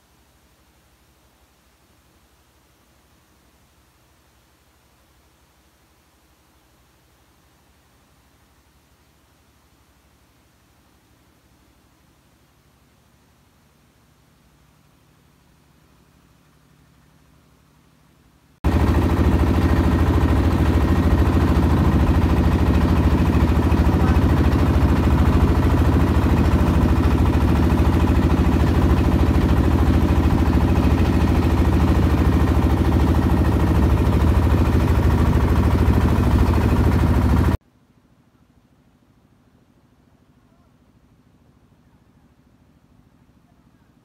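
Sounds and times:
boat engine droning: 0:18.7 - 0:37.6.

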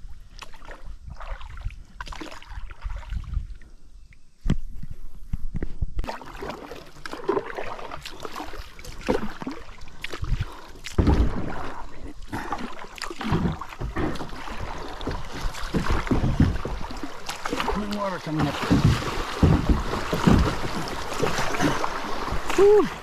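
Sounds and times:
paddle splashing in water: 0:06.0 - 0:23.0.

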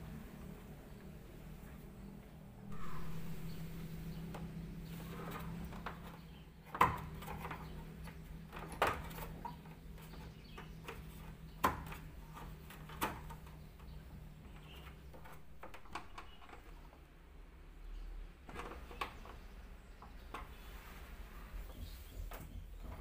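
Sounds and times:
low hum: 0:00.0 - 0:06.5.

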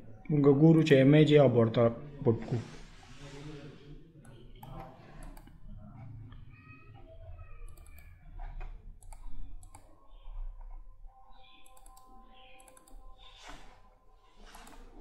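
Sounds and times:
computer mouse clicking: 0:04.2 - 0:05.6, 0:07.6 - 0:10.8, 0:11.4 - 0:13.8, 0:14.4 - 0:15.0.

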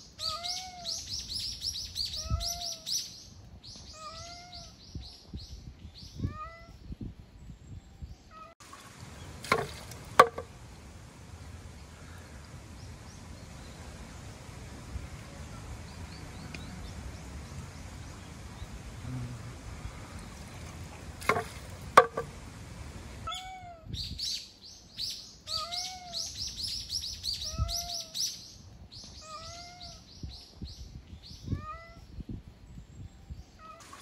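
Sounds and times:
steady outdoor hiss: 0:00.0 - 0:34.0
cat meowing: 0:00.2 - 0:01.0, 0:04.0 - 0:04.7, 0:23.3 - 0:23.9, 0:29.2 - 0:30.0
sharp knocks: 0:09.4 - 0:10.5, 0:21.2 - 0:22.4.

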